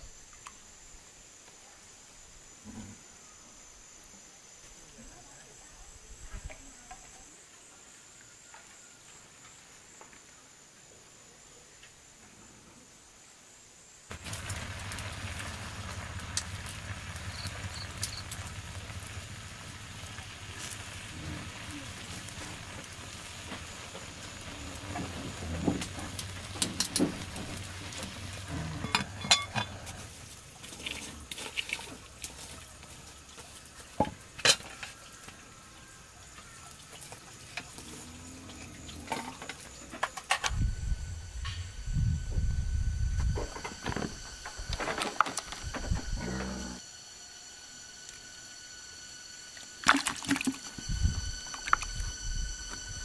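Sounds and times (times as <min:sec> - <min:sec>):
food sizzling in a pan: 0:14.1 - 0:30.4
low steady hum: 0:37.9 - 0:53.0.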